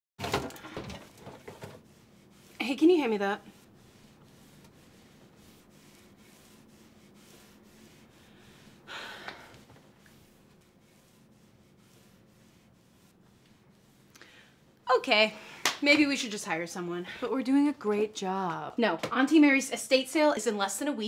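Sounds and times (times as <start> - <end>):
woman breathing heavily: 8.2 - 9.8.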